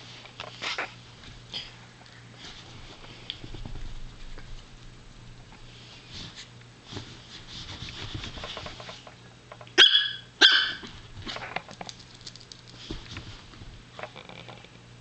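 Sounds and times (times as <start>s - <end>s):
puppy play barks: 9.8s - 10.9s.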